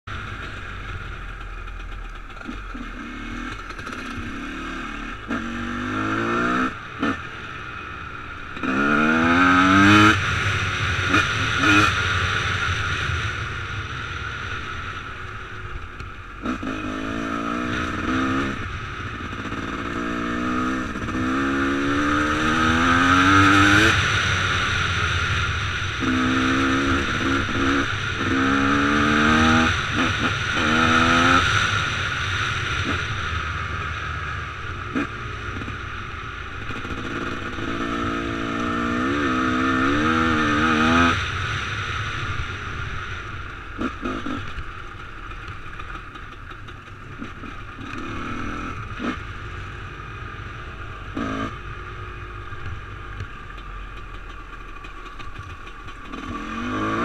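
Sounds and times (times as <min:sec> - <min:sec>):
dirt bike engine revving: 0:02.3 - 0:07.3, 0:08.5 - 0:13.1, 0:16.4 - 0:24.8, 0:26.0 - 0:33.2, 0:36.6 - 0:43.0, 0:43.7 - 0:44.8, 0:47.2 - 0:49.8, 0:50.8 - 0:51.7, 0:55.9 - 0:57.0.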